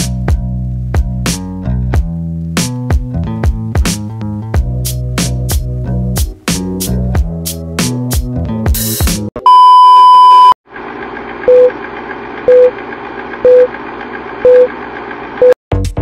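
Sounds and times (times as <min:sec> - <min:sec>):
background music: 0:00.0 - 0:09.3
loud electronic beep: 0:09.4 - 0:10.6
short low beeps: 0:09.4 - 0:10.6.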